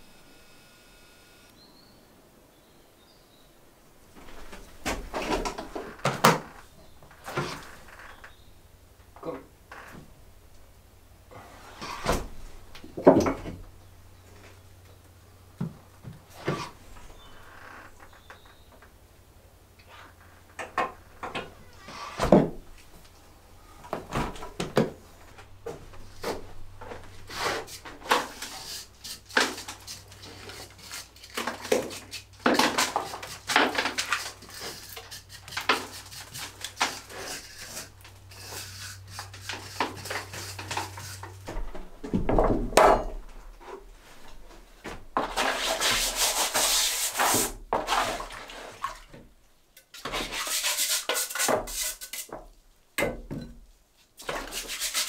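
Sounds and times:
mortar stirred in plastic bucket: 27.2s - 41.4s, 45.2s - 48.9s, 50.0s - 52.4s, 54.2s - 55.0s
scraping and rubbing on stone: 27.2s - 41.4s, 50.0s - 52.4s, 54.2s - 55.0s.

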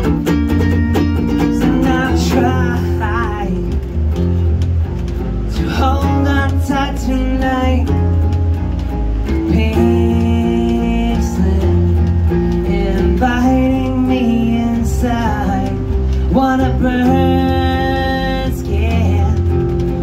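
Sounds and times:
acoustic bass guitar: 0.0s - 20.0s
strummed acoustic guitar: 0.0s - 20.0s
man singing: 1.2s - 4.0s, 5.5s - 8.4s, 9.3s - 20.0s
woman singing along: 1.4s - 3.8s, 9.4s - 19.5s.

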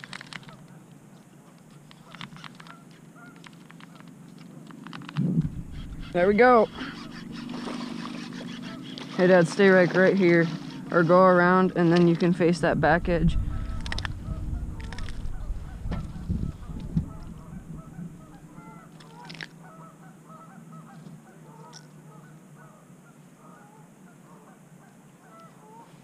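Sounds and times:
flock of birds calling: 5.4s - 26.0s.

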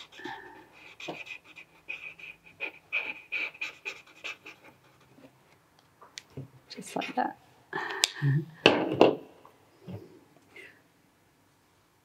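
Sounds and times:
marker pen scribbling on paper: 0.0s - 5.4s.

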